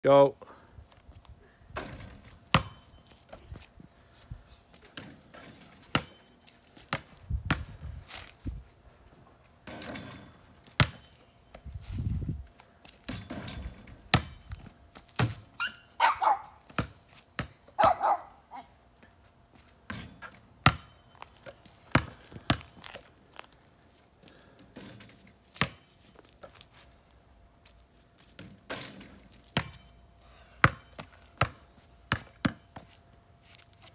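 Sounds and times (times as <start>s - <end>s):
basketball striking backboard and rim: 1.8s - 2.8s, 5.9s - 6.2s, 9.6s - 11.1s, 13.1s - 14.5s, 19.9s - 21.0s, 28.4s - 29.9s, 30.6s - 32.7s
basketball bouncing on asphalt: 1.8s - 3.4s, 5.0s - 7.9s, 9.6s - 11.6s, 12.8s - 15.6s, 16.3s - 18.2s, 19.9s - 23.1s, 24.8s - 25.9s, 28.2s - 30.0s, 30.6s - 33.0s.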